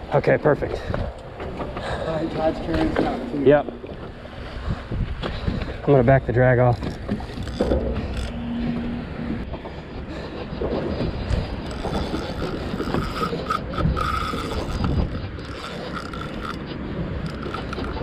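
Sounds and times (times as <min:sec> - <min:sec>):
steady rushing noise: 0:00.0 - 0:18.0
fishing reel whirring and clicking: 0:06.6 - 0:08.4, 0:11.0 - 0:18.0.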